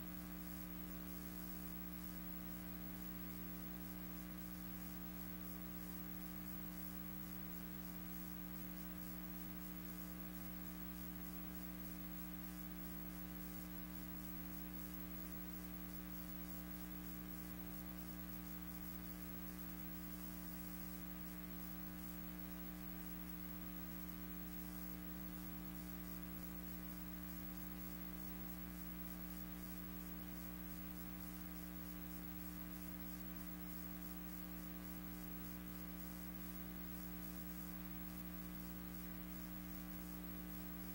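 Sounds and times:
electrical hum: 0.0 - 40.9.

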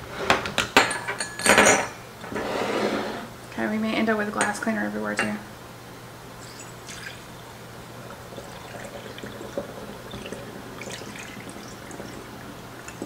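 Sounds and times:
liquid trickling through funnel: 6.4 - 13.0.

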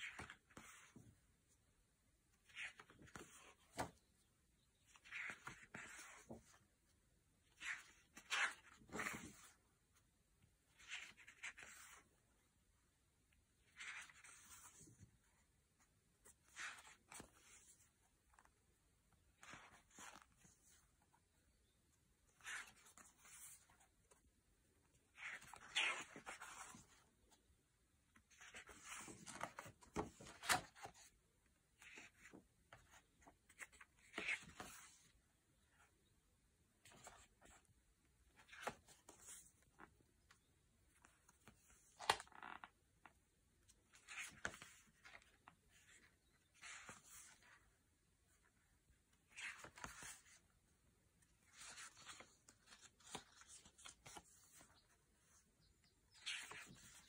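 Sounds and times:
paper pages rustling: 4.8 - 6.6, 7.5 - 9.6, 25.1 - 27.0, 28.2 - 31.1, 49.3 - 50.4, 51.4 - 55.4, 56.1 - 57.0
paper rustling: 51.4 - 55.4.

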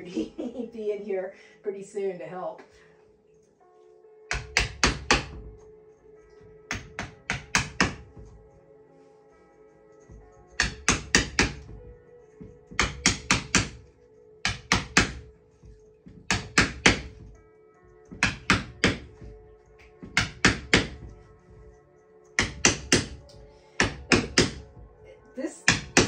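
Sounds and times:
background music: 0.0 - 26.0
mallet tapping a wedge: 4.3 - 5.5, 6.7 - 8.2, 10.6 - 11.8, 12.4 - 13.8, 14.4 - 15.3, 16.1 - 17.3, 18.1 - 21.1, 22.4 - 23.2, 23.8 - 24.7, 25.7 - 26.0.

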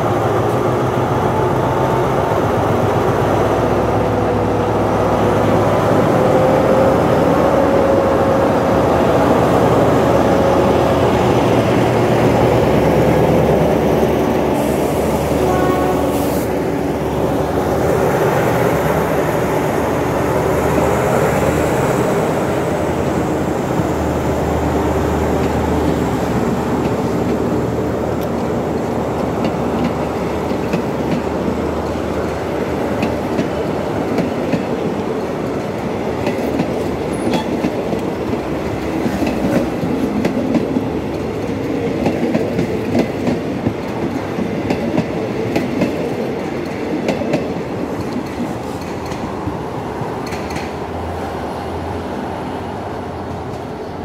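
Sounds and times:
diesel locomotive engine: 0.0 - 54.0
train wheels clattering on rails: 23.0 - 51.0.

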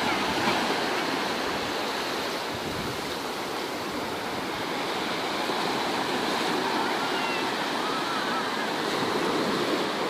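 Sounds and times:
waves breaking on beach: 0.0 - 10.0.

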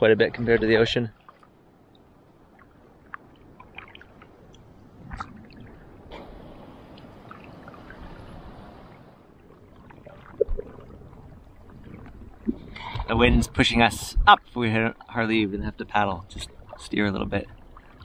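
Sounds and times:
water lapping against paddleboard: 0.1 - 1.6
paddle strokes splashing: 0.3 - 1.6.

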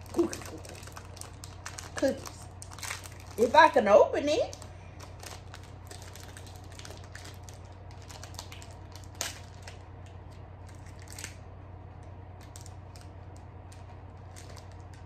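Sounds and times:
packaging ripping: 0.0 - 3.7, 4.5 - 9.9, 10.6 - 11.4, 13.7 - 15.0
low steady hum: 0.0 - 15.0
packaging crinkling: 0.0 - 15.0.

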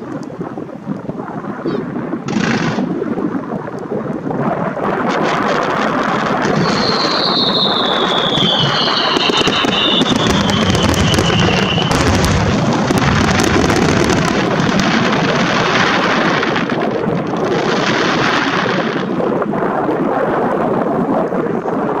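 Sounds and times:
fireworks booming and crackling: 0.0 - 21.9
wind rumbling on microphone: 0.0 - 22.0
whistling firework shell: 6.3 - 14.2.

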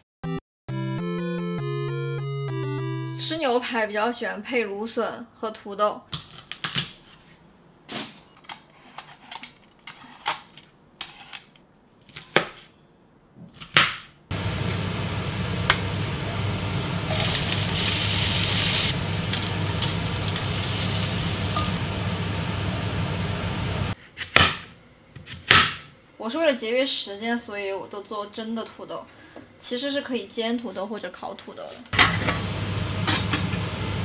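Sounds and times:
knife chopping on cutting board: 13.5 - 14.1
hot oil sizzling in a skillet: 16.9 - 23.9.

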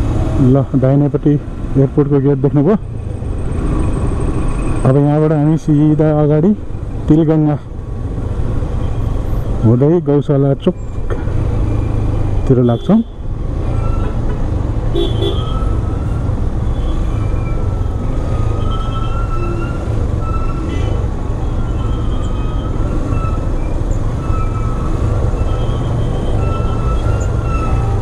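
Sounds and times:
vehicle horn toots: 14.9 - 15.6.

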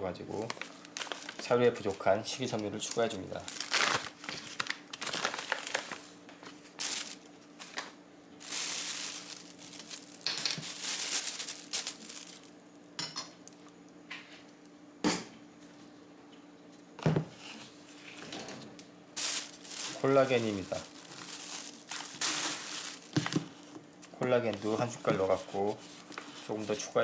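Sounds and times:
kibble shifting: 0.3 - 12.6, 19.2 - 27.0
plastic bag of kibble crinkling: 0.3 - 12.6, 19.2 - 27.0.

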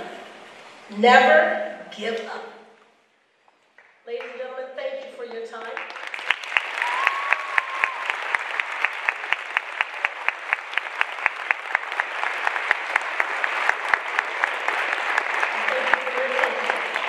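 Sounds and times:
audience applauding: 5.6 - 17.0
close sharp hand clapping: 5.6 - 17.0.

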